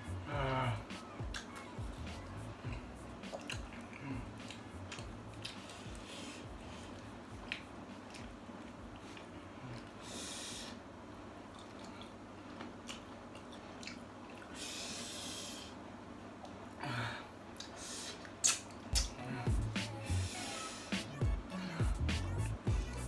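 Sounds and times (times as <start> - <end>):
heavy breathing through nose: 0.0 - 1.2, 3.7 - 7.2, 9.0 - 10.9, 14.4 - 15.8, 16.8 - 18.4, 19.1 - 22.2
person chewing with wet mouth clicks: 2.7 - 5.9, 11.5 - 14.5, 17.6 - 19.1.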